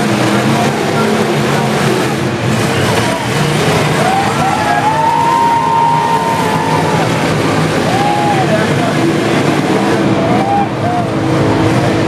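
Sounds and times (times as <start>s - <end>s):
car engines running loudly: 0.0s - 12.0s
crowd noise: 0.0s - 12.0s
spectator yelling: 3.9s - 9.0s, 10.0s - 11.2s.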